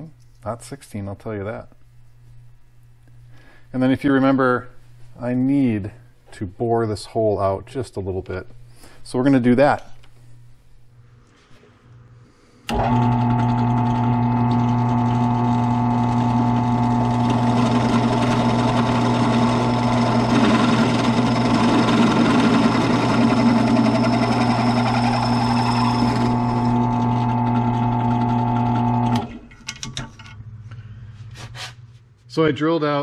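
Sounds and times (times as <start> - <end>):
drill press motor hum: 12.6 - 29.5
drill bit rasping through metal: 14.7 - 29.2.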